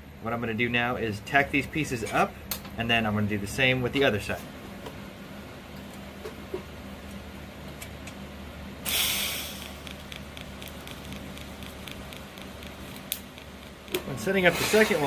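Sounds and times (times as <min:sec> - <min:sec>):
welding arc hissing: 0:08.8 - 0:15.0.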